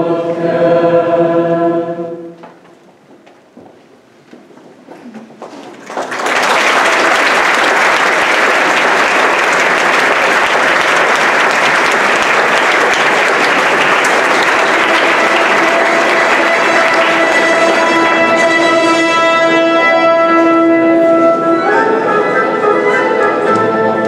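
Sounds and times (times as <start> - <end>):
large crowd applauding: 5.4 - 19.4.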